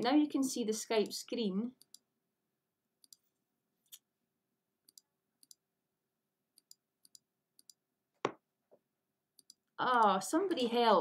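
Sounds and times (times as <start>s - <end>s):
computer mouse clicks: 1.8s - 2.0s, 3.0s - 3.3s, 4.8s - 5.6s, 6.6s - 7.8s, 9.4s - 9.7s.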